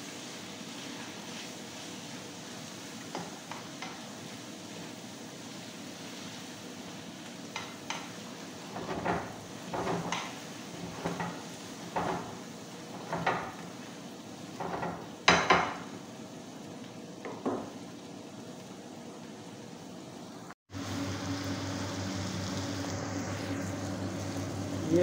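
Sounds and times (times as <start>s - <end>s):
sizzling hiss: 0.0s - 25.0s
spatula scraping a frying pan: 7.9s - 13.8s.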